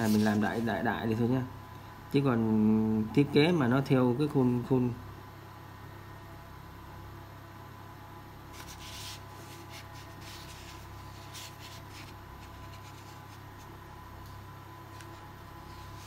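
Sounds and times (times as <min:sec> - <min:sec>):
low electrical hum: 0:00.0 - 0:16.0
pen scratching on paper: 0:08.6 - 0:13.4.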